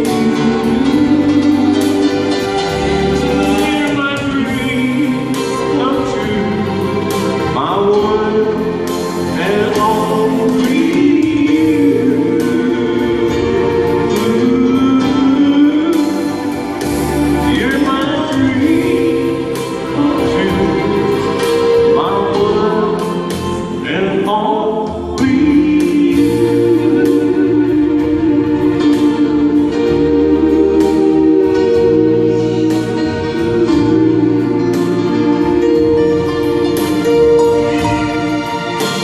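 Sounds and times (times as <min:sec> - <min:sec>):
keyboard accompaniment: 0:00.0 - 0:39.0.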